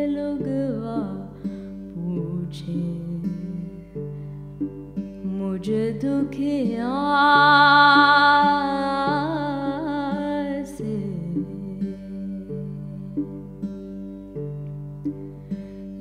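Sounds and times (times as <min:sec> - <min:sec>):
woman singing: 0:00.0 - 0:04.1, 0:05.2 - 0:13.8
plucked string drone: 0:00.0 - 0:16.0.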